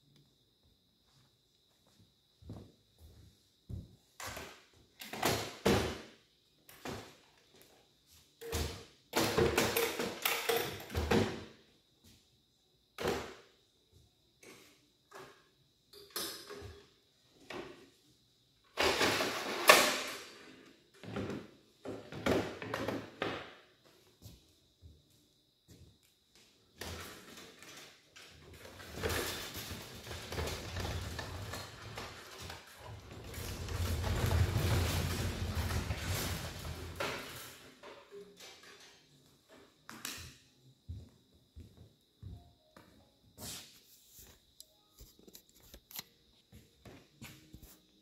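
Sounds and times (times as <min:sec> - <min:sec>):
rolling tool table rattling: 0:18.8 - 0:23.2, 0:26.9 - 0:39.1.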